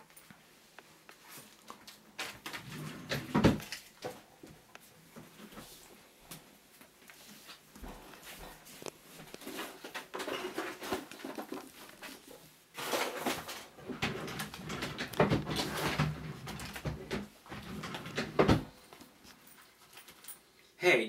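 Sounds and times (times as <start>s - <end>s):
rummaging rustling and knocking: 7.2s - 20.4s.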